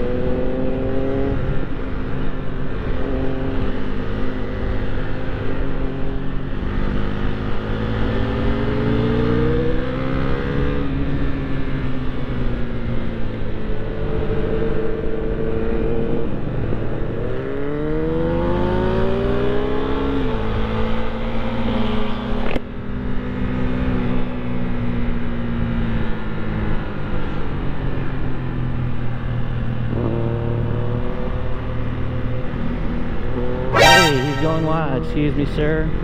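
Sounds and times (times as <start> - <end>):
motorcycle engine revving: 33.3 - 35.2.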